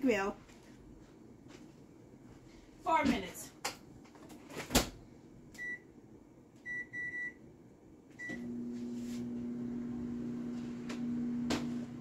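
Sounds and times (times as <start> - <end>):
microwave oven humming: 5.5 - 12.0
microwave keypad beeps: 5.6 - 5.9, 6.7 - 7.4, 8.2 - 8.5.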